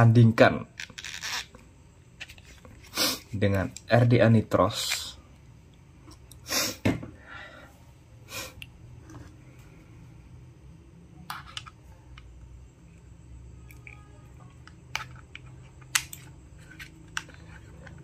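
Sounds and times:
low steady hum: 0:00.0 - 0:18.0.

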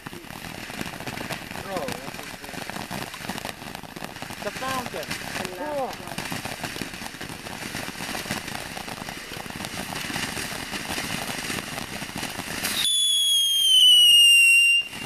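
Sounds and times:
firework crackling hiss: 0:00.0 - 0:15.0
firework shrill whistle: 0:12.2 - 0:15.0.

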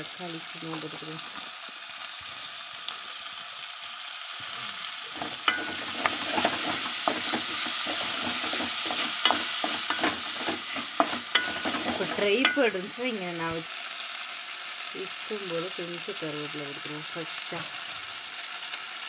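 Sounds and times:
vegetables sizzling in oil: 0:00.0 - 0:19.0.

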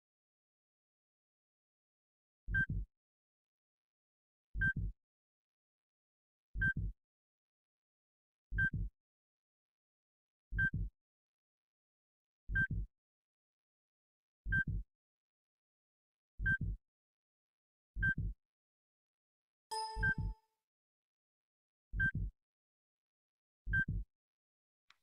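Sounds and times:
heartbeat double thump: 0:02.6 - 0:02.8, 0:08.6 - 0:08.9, 0:10.6 - 0:10.9, 0:12.5 - 0:12.9, 0:14.5 - 0:14.8, 0:16.4 - 0:16.8, 0:18.1 - 0:18.3, 0:22.0 - 0:22.3, 0:23.7 - 0:24.0
heart monitor beep: 0:14.5 - 0:14.8, 0:19.7 - 0:20.4, 0:22.0 - 0:22.3, 0:23.7 - 0:24.1.

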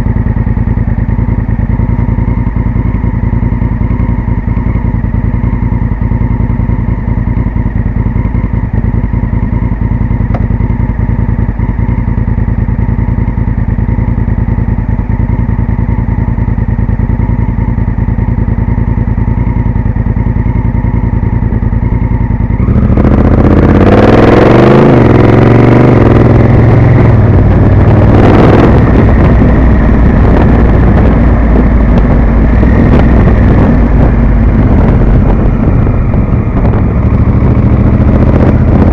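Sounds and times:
motorcycle engine idling and revving: 0:00.0 - 0:38.9
rush of wind: 0:15.4 - 0:38.9.

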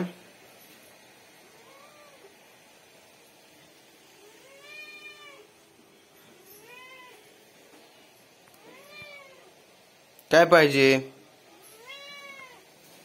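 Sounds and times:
cat meowing: 0:01.5 - 0:02.4, 0:04.2 - 0:05.5, 0:06.4 - 0:07.4, 0:08.6 - 0:09.6, 0:11.5 - 0:12.8.

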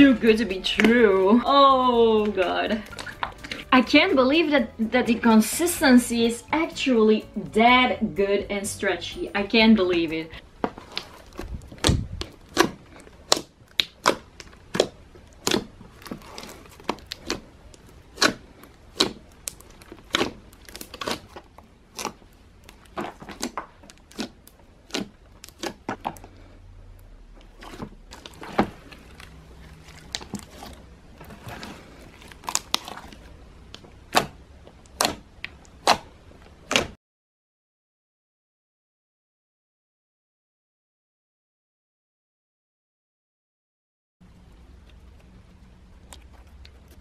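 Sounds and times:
slime popping and squelching: 0:02.2 - 0:03.7, 0:10.4 - 0:26.4, 0:27.3 - 0:37.0.

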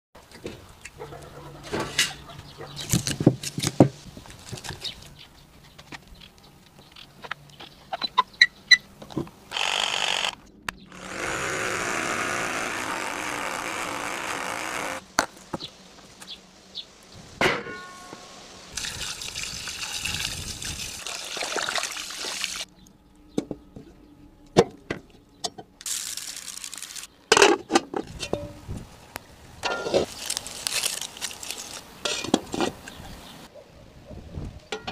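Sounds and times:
water pouring: 0:18.8 - 0:22.7.

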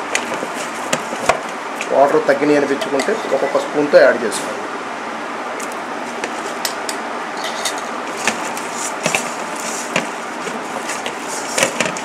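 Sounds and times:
hand mixing batter in metal bowl: 0:00.0 - 0:03.7, 0:08.1 - 0:12.0.

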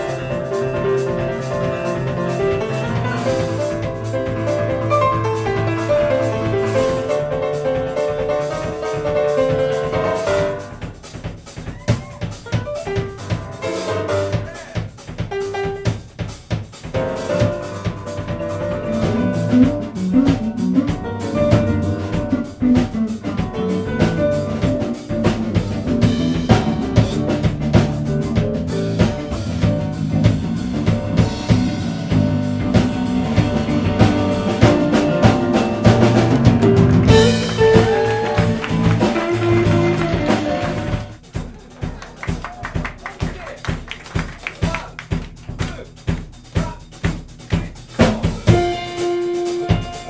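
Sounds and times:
electric bass: 0:00.0 - 0:08.8, 0:17.0 - 0:41.3
grand piano: 0:00.0 - 0:41.2, 0:48.4 - 0:50.0
drum kit: 0:00.0 - 0:50.0.

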